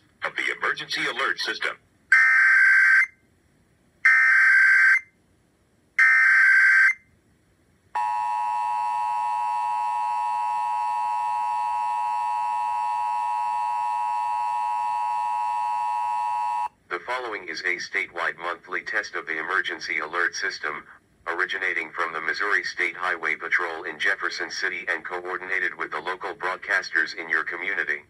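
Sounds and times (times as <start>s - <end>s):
harsh two-tone attention signal: 8.0s - 16.7s.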